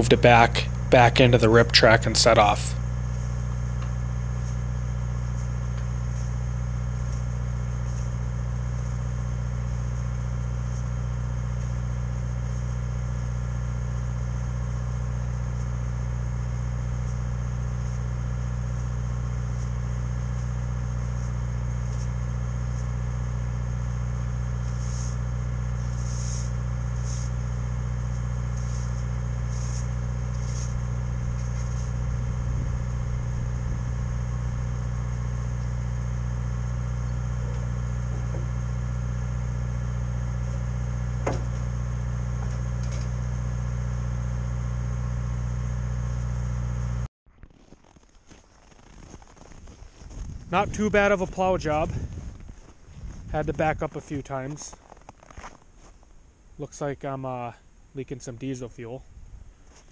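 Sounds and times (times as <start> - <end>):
diesel engine idling: 0.0 - 7.4
faint scratchy strokes: 24.7 - 27.4, 28.6 - 32.0.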